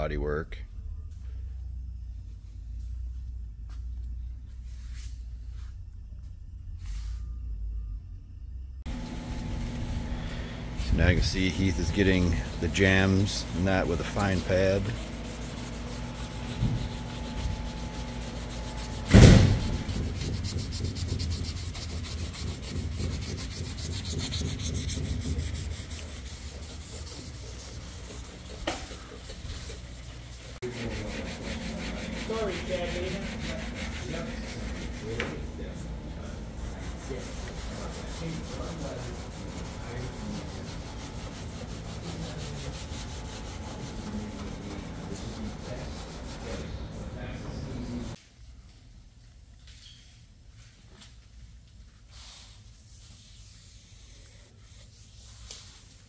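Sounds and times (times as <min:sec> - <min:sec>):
abrasive pad scuffing metal: 0:08.9 - 0:45.7
sharp knock: 0:19.1 - 0:20.2.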